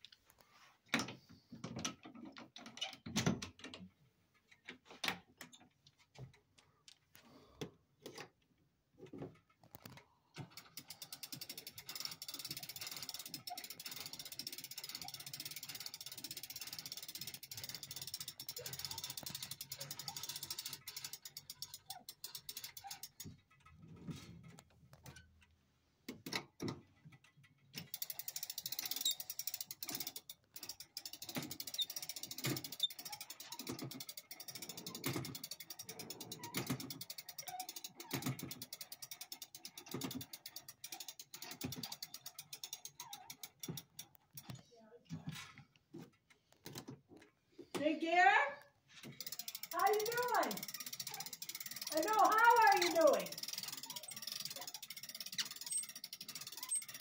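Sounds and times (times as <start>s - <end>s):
clock winding ratchet clicking: 10.4s - 23.7s, 27.7s - 44.6s, 49.0s - 57.0s.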